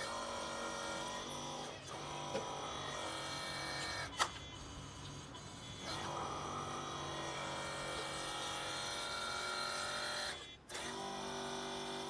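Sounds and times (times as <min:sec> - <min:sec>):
small electric motors whining: 0:00.0 - 0:12.0.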